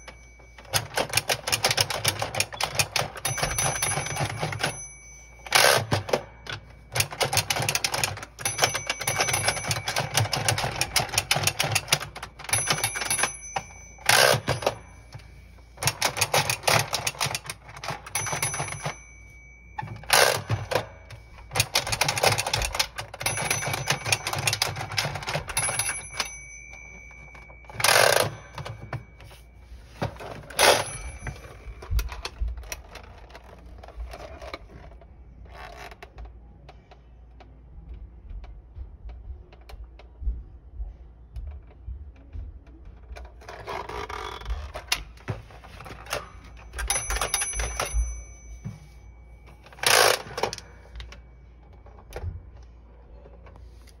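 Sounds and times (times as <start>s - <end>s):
plastic toy clacks and knocks: 0.0s - 4.8s, 5.5s - 15.2s, 15.8s - 19.0s, 19.8s - 29.2s, 30.0s - 37.0s, 41.5s - 48.1s.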